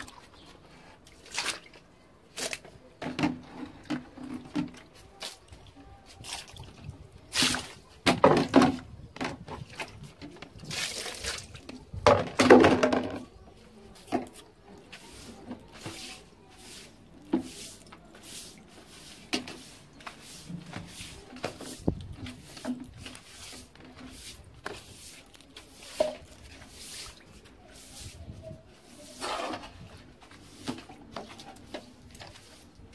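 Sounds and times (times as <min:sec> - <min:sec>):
broom sweeping wet tiled floor: 0:00.0 - 0:08.4, 0:09.8 - 0:12.0, 0:12.7 - 0:32.9.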